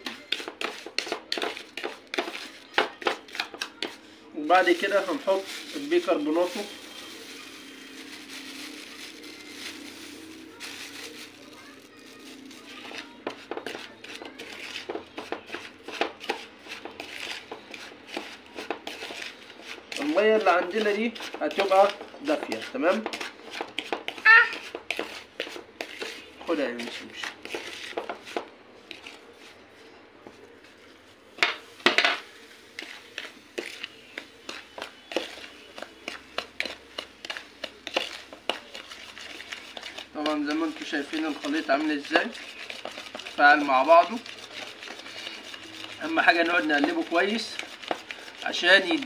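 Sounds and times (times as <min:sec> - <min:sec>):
spoon scraping powder in bowl: 0:00.0 - 0:49.0.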